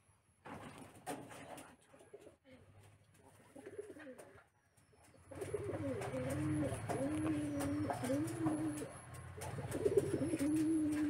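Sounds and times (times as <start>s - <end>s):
pigeon cooing: 3.5s - 4.4s, 5.3s - 11.0s.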